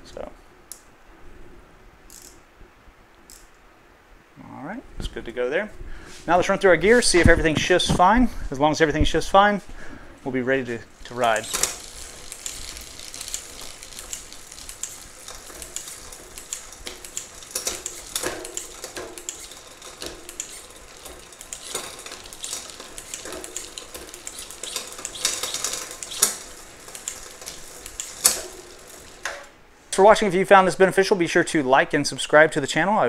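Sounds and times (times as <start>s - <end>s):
bicycle chain running over cassette: 11.0s - 29.6s
derailleur shifting clicks: 11.0s - 29.6s.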